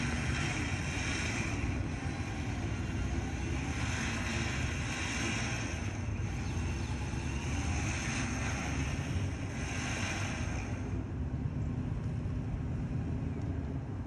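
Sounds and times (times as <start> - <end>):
high hiss: 0.0 - 11.0
engine and winch rumbling: 0.0 - 14.0.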